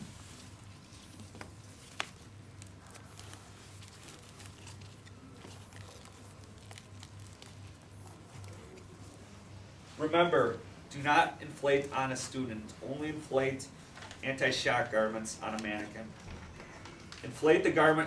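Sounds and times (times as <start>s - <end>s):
steady low hum: 0.0s - 18.0s
small clicks and rustling: 0.4s - 9.2s.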